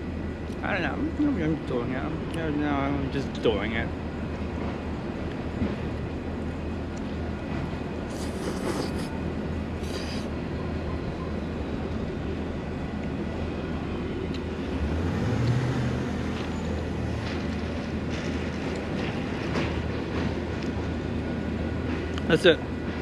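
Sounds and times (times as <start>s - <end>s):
street traffic rumble: 0.0s - 23.0s
short scrapes: 8.1s - 9.1s, 9.8s - 10.3s
heavy vehicle passing: 13.7s - 23.0s.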